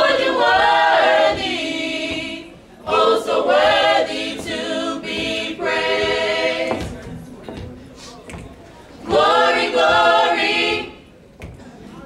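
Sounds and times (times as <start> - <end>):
gospel group singing a cappella: 0.0 - 7.2, 8.9 - 11.2.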